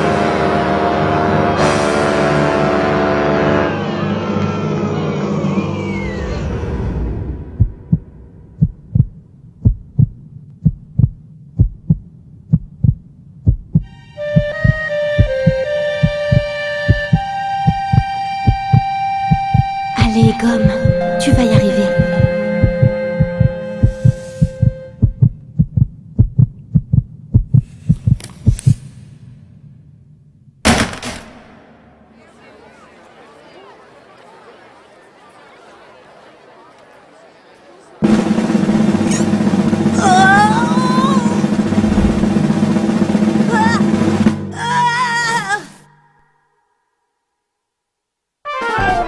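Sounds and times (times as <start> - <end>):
held music chord: 0.0 - 5.6, 13.9 - 25.0
heartbeat thumps: 7.5 - 28.9
loud burst of noise: 38.0 - 44.4.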